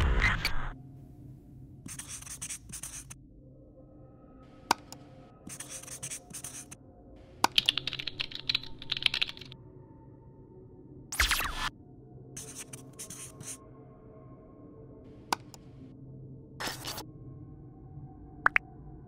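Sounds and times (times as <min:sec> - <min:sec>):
marker scribbling: 0:01.9 - 0:03.2, 0:05.5 - 0:06.8, 0:12.4 - 0:13.6, 0:16.6 - 0:17.0
mouse click: 0:04.7 - 0:05.0, 0:15.3 - 0:15.6
keyboard typing: 0:07.4 - 0:09.6.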